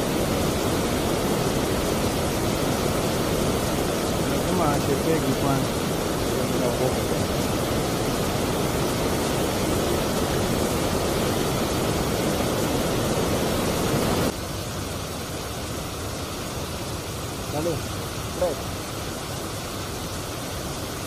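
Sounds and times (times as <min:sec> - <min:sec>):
river water rushing over boulders: 0:00.0 - 0:21.0.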